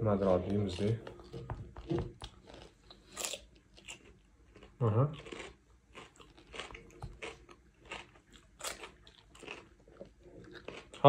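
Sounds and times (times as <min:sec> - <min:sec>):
crisp cucumber crunches: 0:02.5 - 0:09.8.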